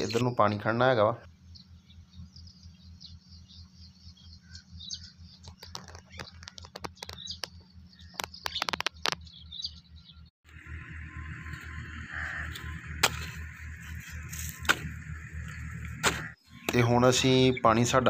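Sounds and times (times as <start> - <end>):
small birds chirping: 0.0 - 18.0
pulsing low hum: 1.2 - 18.0
sharp clicking calls: 4.4 - 9.6.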